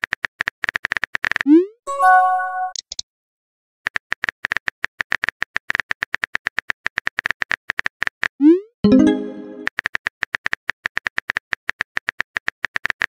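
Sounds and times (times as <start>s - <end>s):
synth message chime: 1.9s - 2.7s, 8.9s - 9.7s.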